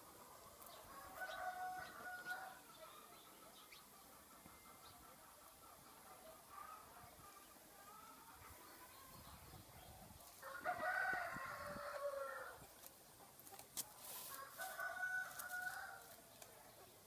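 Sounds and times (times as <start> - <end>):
rooster crowing: 0.9 - 2.6, 10.4 - 12.6, 14.4 - 16.0.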